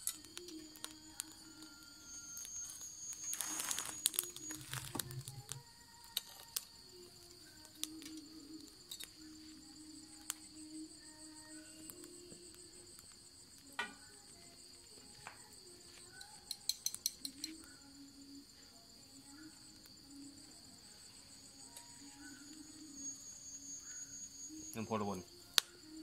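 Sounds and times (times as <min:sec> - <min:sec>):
sharp clicks: 0:00.0 - 0:01.7, 0:02.4 - 0:09.1, 0:16.1 - 0:17.6
crickets chirping: 0:00.0 - 0:26.0.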